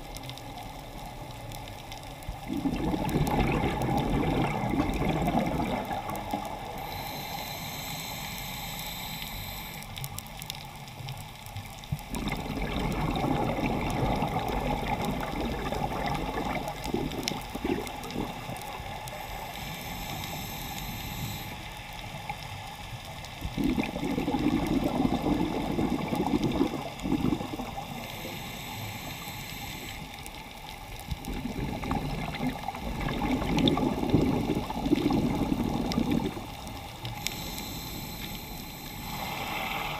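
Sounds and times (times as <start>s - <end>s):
exhaled bubbles rushing: 2.3s - 6.8s, 12.0s - 19.1s, 23.4s - 28.0s, 31.0s - 37.2s
diver inhaling through regulator: 6.8s - 9.9s, 19.1s - 21.7s, 23.6s - 30.2s, 37.1s - 39.9s.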